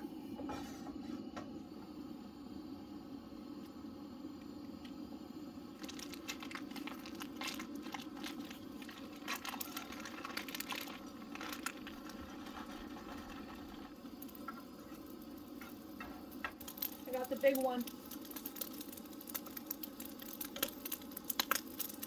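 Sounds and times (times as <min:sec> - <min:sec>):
camp stove burner rushing: 0:03.4 - 0:22.0
butter sizzling in a frying pan: 0:05.6 - 0:22.0
dry rice pouring into pan: 0:05.8 - 0:22.0
wooden spoon scraping pan: 0:11.3 - 0:15.0.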